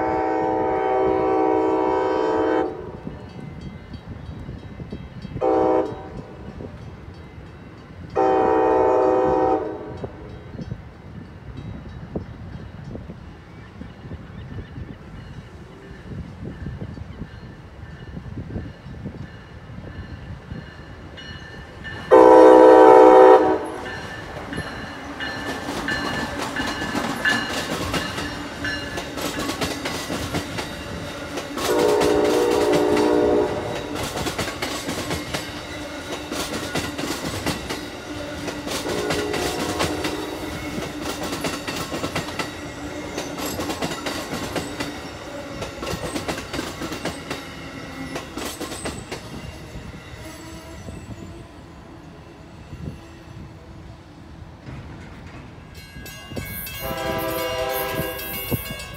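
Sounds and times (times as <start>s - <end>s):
train horn blasts: 0.0s - 3.1s, 5.4s - 6.5s, 8.1s - 10.4s, 22.0s - 24.1s, 31.6s - 34.2s, 38.6s - 40.9s, 56.5s - 58.9s
train wheels clacking on rails: 14.8s - 51.4s, 54.4s - 58.9s.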